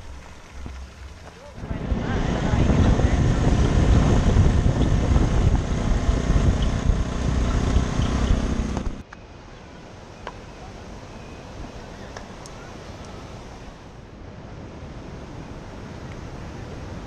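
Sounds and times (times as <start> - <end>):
wind buffeting microphone: 1.6 - 9.0.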